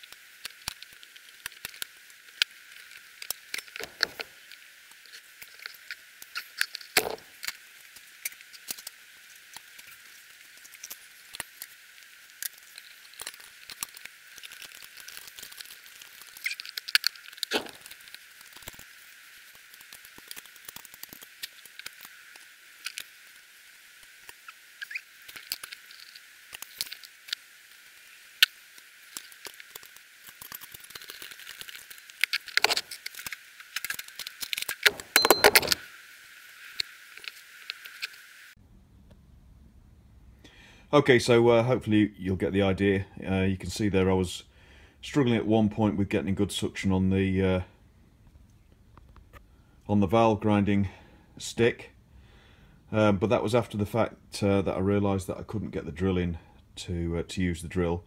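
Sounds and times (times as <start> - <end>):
steady hiss: 0.0 - 58.0
metal tools clicking and knocking: 34.8 - 35.8.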